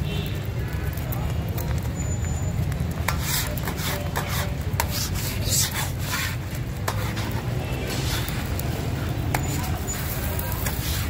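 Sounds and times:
metal spatula scraping griddle: 3.0s - 11.0s.

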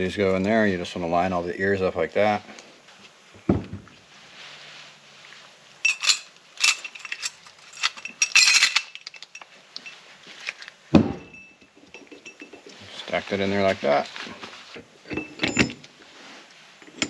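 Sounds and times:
metal plates clinking: 5.8s - 10.0s, 11.2s - 12.8s.

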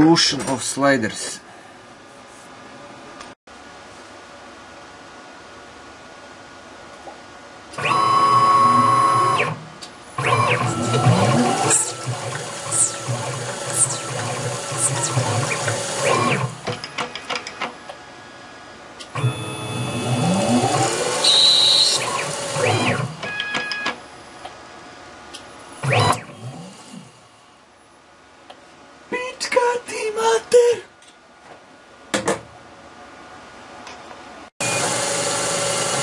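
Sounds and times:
lathe motors whining: 10.2s - 17.1s, 19.2s - 23.4s, 34.6s - 36.0s.

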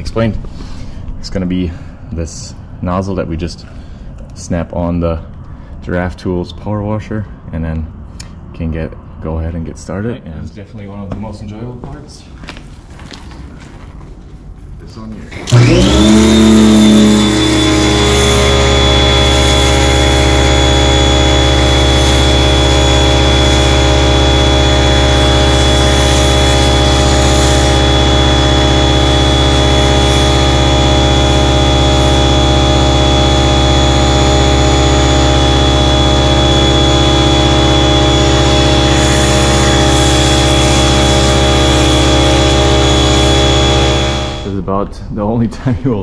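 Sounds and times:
pressure washer humming: 15.4s - 44.6s.

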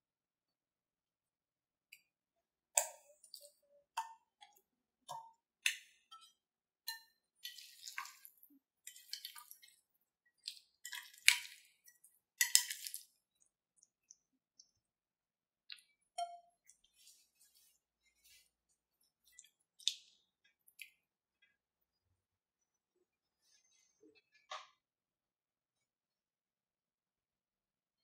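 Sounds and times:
wet squelches and slaps: 10.4s - 11.8s, 12.4s - 13.2s.

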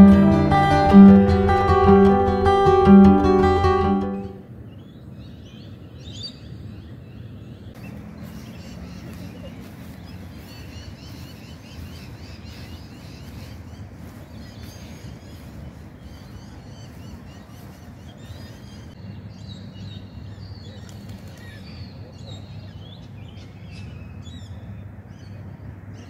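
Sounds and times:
birds chirping: 0.0s - 4.4s, 7.7s - 19.1s.

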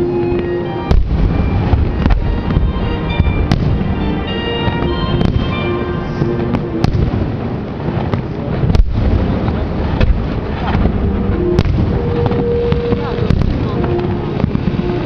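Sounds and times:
fireworks bursting: 0.0s - 15.0s
sharp firework reports: 0.9s - 15.0s.

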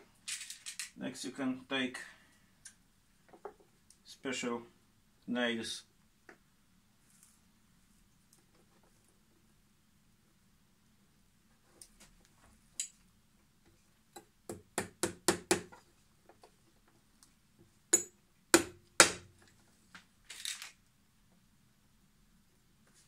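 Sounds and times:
hammer tapping nails: 14.2s - 15.7s.

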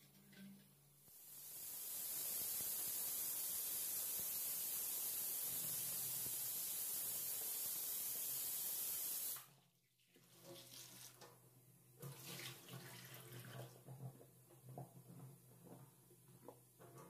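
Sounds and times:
faint splashing and handling: 10.0s - 17.0s
tap water running into sink: 12.0s - 17.0s.

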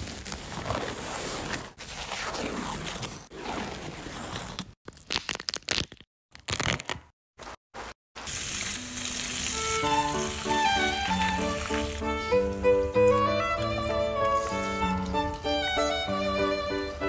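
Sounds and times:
potato skin peeling wet tearing: 4.9s - 7.1s.

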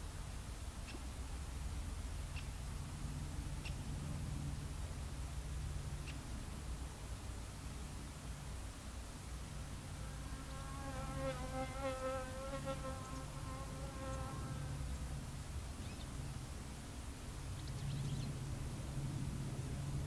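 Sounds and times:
flying insect buzzing: 10.0s - 14.8s.

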